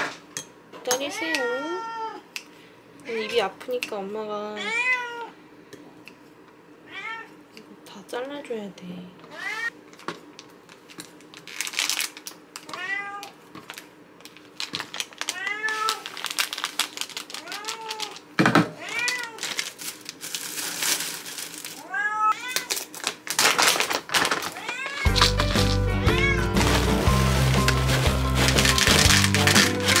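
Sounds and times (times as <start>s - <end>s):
cats meowing: 4.5s - 5.4s, 6.9s - 7.4s, 9.3s - 9.7s, 12.6s - 13.4s, 15.2s - 16.2s, 17.4s - 19.6s, 21.8s - 23.0s, 24.4s - 26.9s
packaging crinkling: 9.9s - 30.0s.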